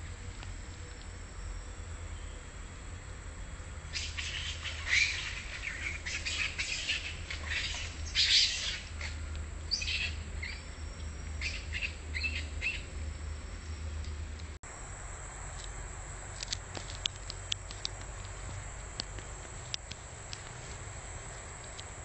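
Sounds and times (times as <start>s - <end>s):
birds chirping: 0.0s - 14.6s.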